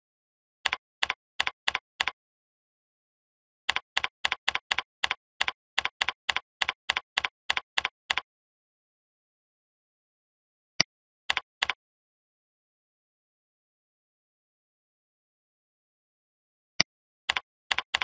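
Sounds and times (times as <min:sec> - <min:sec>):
keyboard typing: 0:00.6 - 0:02.2, 0:03.7 - 0:08.3, 0:11.3 - 0:11.8, 0:17.3 - 0:18.0.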